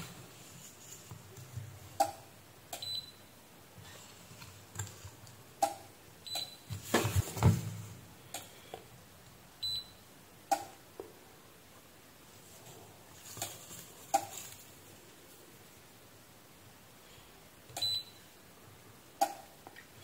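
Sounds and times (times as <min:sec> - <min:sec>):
handling noise: 0:06.7 - 0:08.0.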